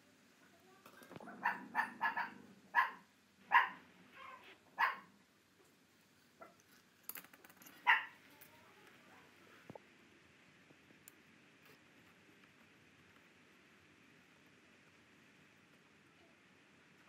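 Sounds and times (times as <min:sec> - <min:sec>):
dog barking: 0:01.2 - 0:05.1, 0:07.8 - 0:08.2.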